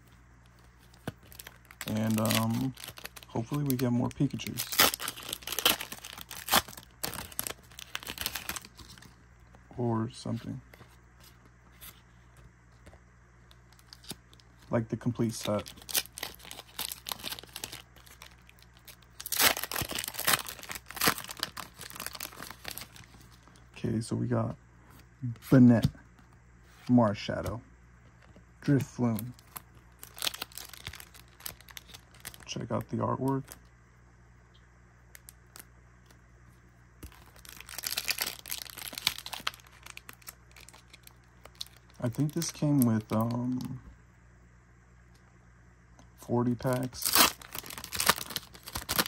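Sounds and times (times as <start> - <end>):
foil wrapper crinkling: 0.6 - 9.2, 13.7 - 23.5, 29.0 - 33.6, 37.0 - 43.8, 46.6 - 49.0.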